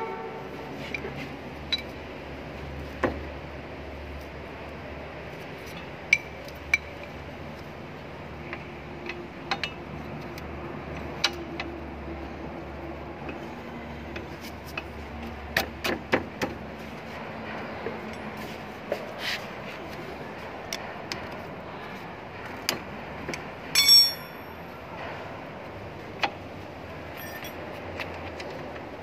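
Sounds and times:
metal brake parts clicking: 23.8 - 24.4
metallic clang: 23.8 - 24.5.

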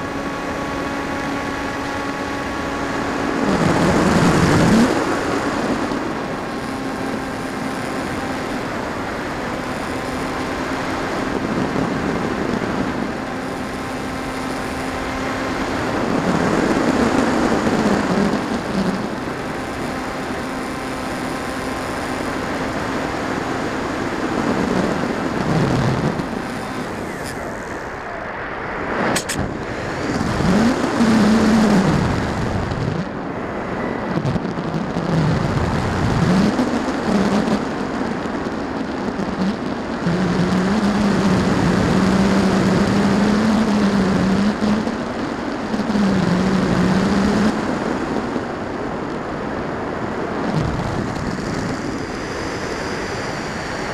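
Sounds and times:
electric motor hum: 0.0 - 48.2
wind rushing over microphone: 0.0 - 53.9
sharp click: 29.1 - 29.5.

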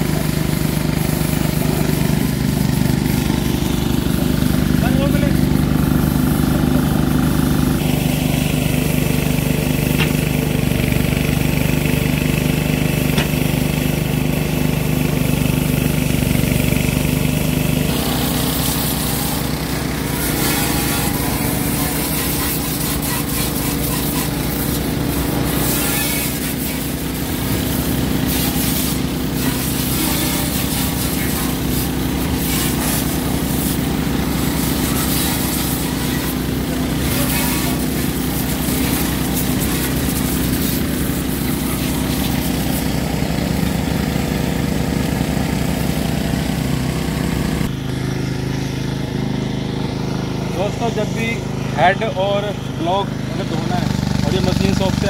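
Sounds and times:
pressure washer engine running: 0.0 - 55.0
water jet hissing on metal: 17.2 - 44.6.

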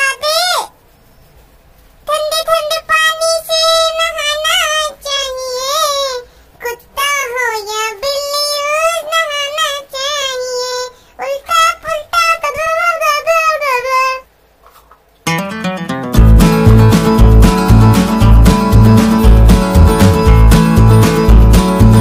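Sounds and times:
high-pitched voice singing: 2.1 - 14.3.

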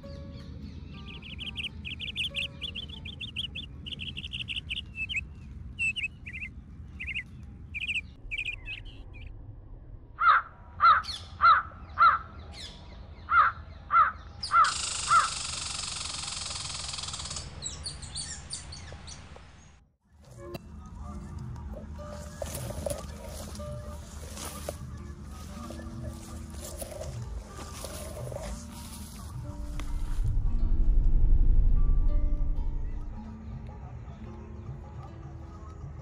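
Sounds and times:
small birds chirping: 0.0 - 9.3, 11.0 - 19.7, 20.8 - 30.2
crow cawing loudly: 10.2 - 12.3, 13.3 - 15.3.

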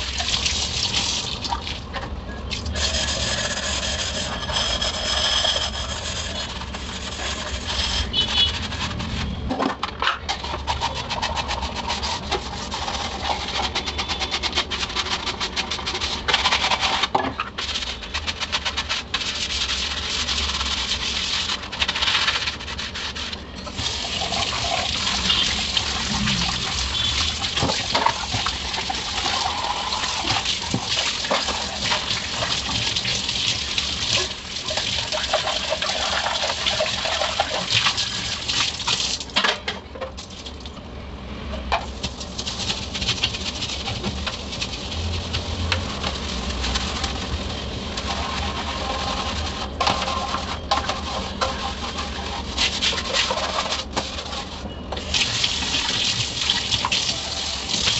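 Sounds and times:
tap water running: 0.0 - 1.9, 23.7 - 39.4, 55.0 - 57.9
hands scrubbing dishes: 2.7 - 39.2, 41.8 - 57.9.

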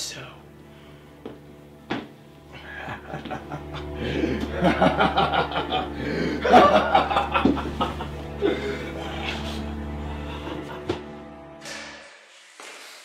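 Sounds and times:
low steady drone: 0.0 - 12.2
man laughing heartily: 2.6 - 11.3.

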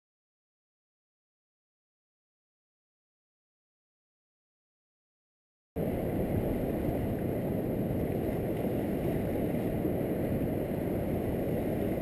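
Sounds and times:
wind buffeting microphone: 5.8 - 12.0.

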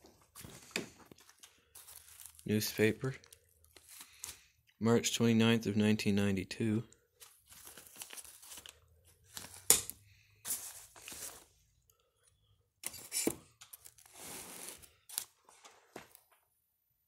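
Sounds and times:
paper rustling and crinkling: 0.0 - 4.5, 7.1 - 11.6, 12.8 - 16.4.

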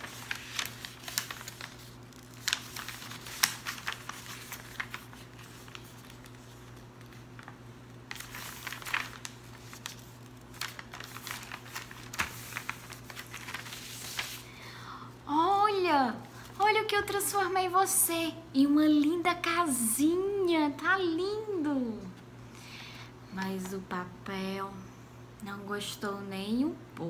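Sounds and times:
paper folding and rustling: 0.0 - 14.6.

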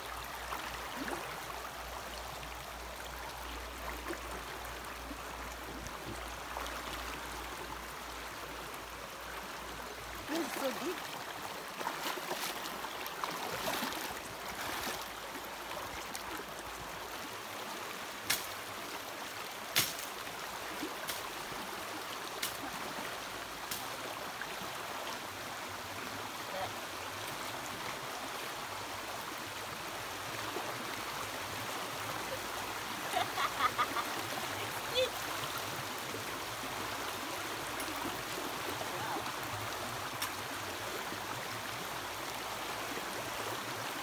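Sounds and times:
shallow stream running: 0.0 - 44.0
person wading through water: 10.2 - 16.4.

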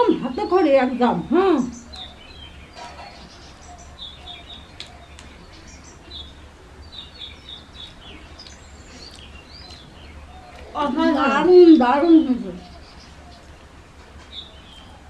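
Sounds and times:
birds chirping: 0.0 - 15.0
low steady hum: 0.0 - 15.0.

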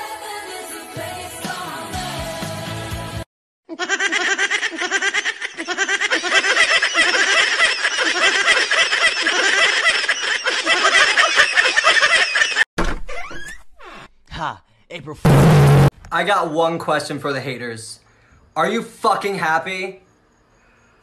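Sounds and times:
high-pitched laughter: 3.7 - 12.7.

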